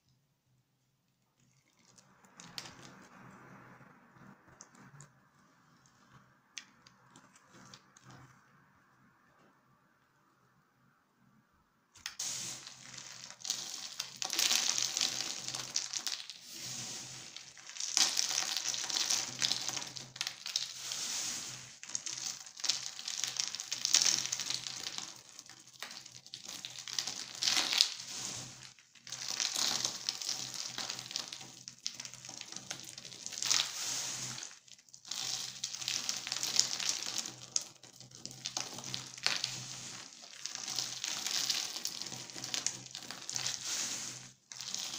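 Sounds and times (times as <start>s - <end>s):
dry soap cubes crackling: 12.0s - 44.9s.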